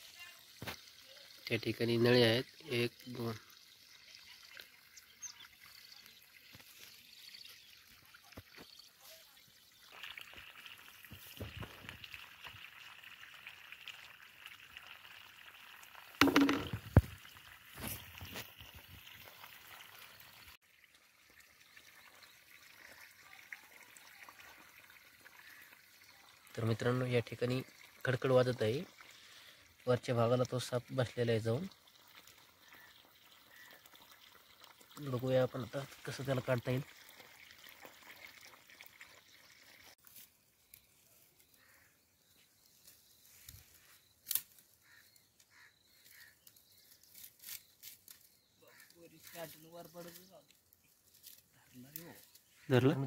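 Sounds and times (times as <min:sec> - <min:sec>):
faint water trickle: 0:00.0 - 0:53.0
rustling of dry stalks: 0:16.3 - 0:19.7, 0:40.0 - 0:52.8.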